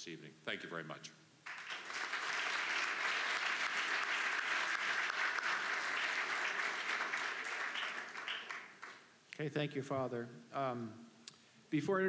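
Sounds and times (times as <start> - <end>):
audience applauding: 1.4 - 9.0.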